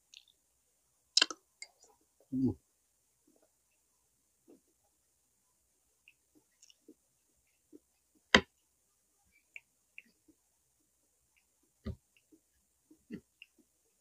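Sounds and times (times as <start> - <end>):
mouth clicks: 1.2 - 2.5
quiet chewing: 6.1 - 8.1.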